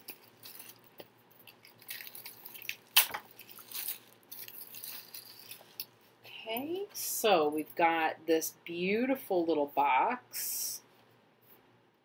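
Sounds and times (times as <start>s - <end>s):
plastic bag crinkling: 0.0s - 6.0s.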